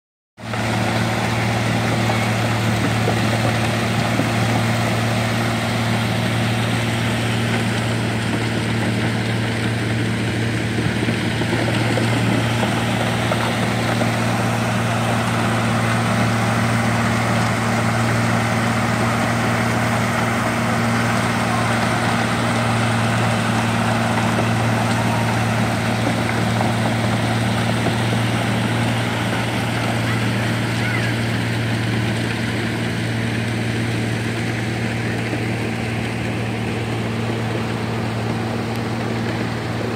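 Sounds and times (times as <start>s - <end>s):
pump engine droning: 0.4s - 39.9s
water gushing: 0.4s - 39.9s.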